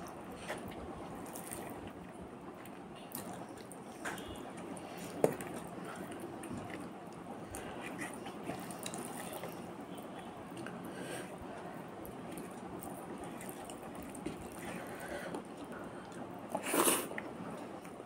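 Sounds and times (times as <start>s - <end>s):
chewing and wet mouth sounds: 0.0s - 10.9s, 11.5s - 18.0s
rice squishing between fingers: 0.4s - 2.0s.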